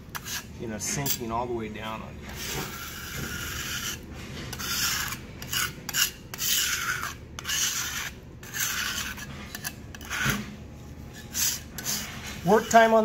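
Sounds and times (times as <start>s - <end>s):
putty knife scraping concrete: 0.1s - 1.4s, 2.3s - 13.0s.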